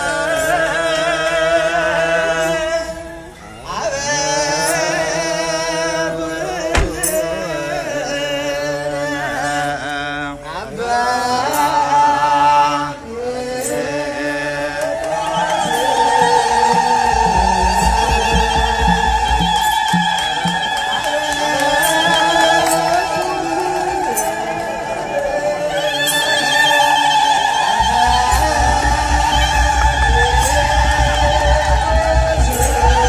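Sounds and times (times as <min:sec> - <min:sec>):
voices singing a chant: 0:00.0 - 0:33.0
sharp knock: 0:06.7 - 0:07.3
low even beat: 0:06.7 - 0:07.6, 0:15.9 - 0:20.7, 0:27.8 - 0:33.0.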